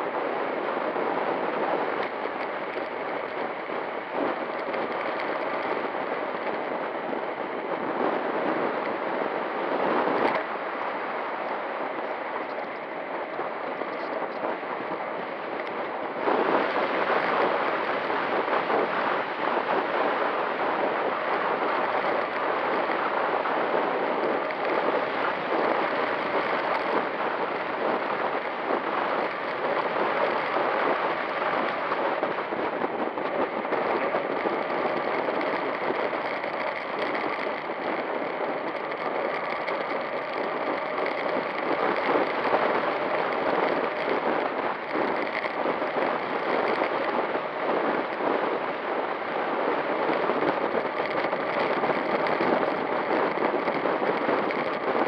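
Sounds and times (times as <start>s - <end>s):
bike tyre noise on asphalt: 0.0s - 55.0s
wind on microphone: 0.0s - 55.0s.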